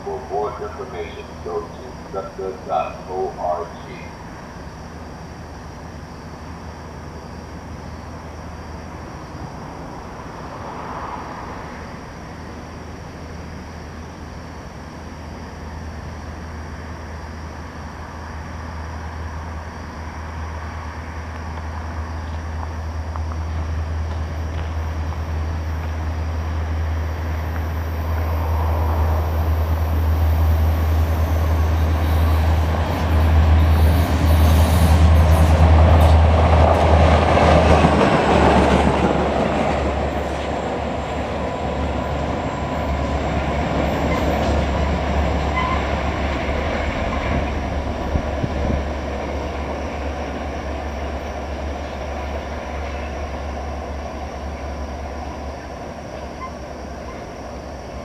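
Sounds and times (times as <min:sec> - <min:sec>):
diesel locomotive engine drone: 0:00.0 - 0:58.0
wheel-on-rail noise: 0:00.0 - 0:58.0.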